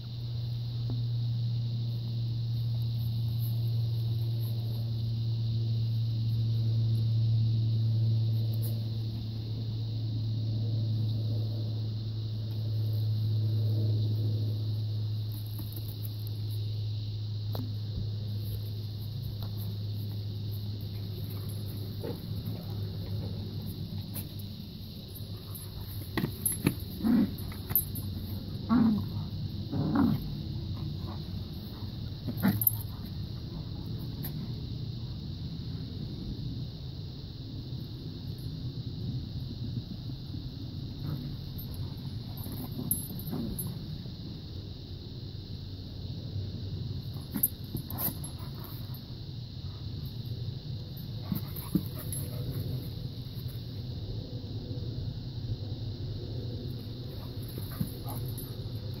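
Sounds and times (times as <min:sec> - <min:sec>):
low mechanical hum: 0:00.0 - 0:59.0
dogs play growling: 0:20.5 - 0:24.4, 0:25.0 - 0:34.6, 0:41.0 - 0:44.0, 0:47.1 - 0:49.1, 0:51.0 - 0:53.6, 0:56.6 - 0:59.0.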